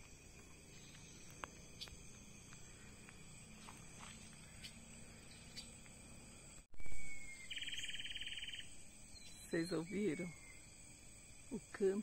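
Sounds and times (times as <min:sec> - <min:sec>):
forest insects chorus: 0:00.0 - 0:12.0
bird whistling and trilling: 0:06.9 - 0:09.9.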